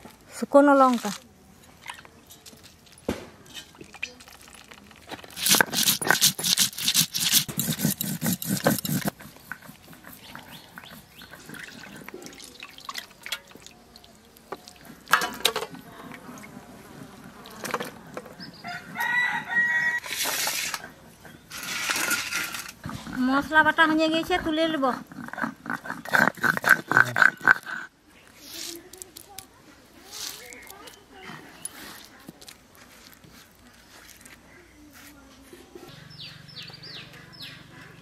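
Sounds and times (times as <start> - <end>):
stone roller crushing spices: 3.6 - 13.7, 17.1 - 23.7
water splashing in bowl: 11.2 - 16.6.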